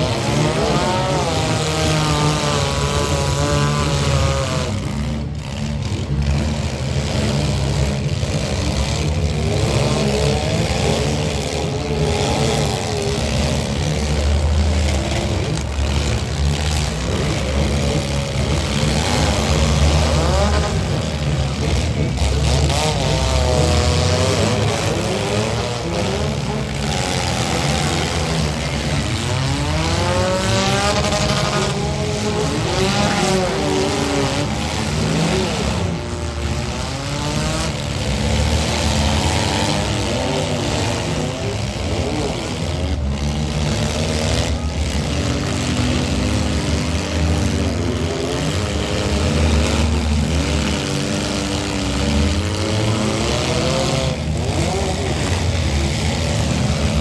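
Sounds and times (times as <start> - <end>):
car engines revving: 0.0 - 57.0.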